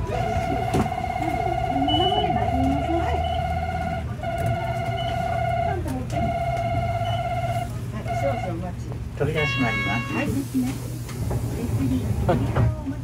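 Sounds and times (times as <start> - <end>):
idling bus engine rumble: 0.0 - 13.0
electronic warning buzzer: 0.1 - 8.6.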